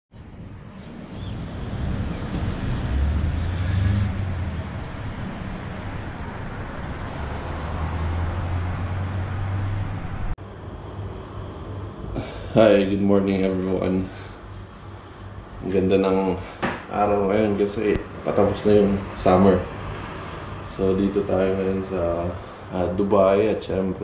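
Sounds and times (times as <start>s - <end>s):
road traffic noise: 0.2s - 24.0s
vehicle engines passing: 0.8s - 12.6s, 13.6s - 24.0s.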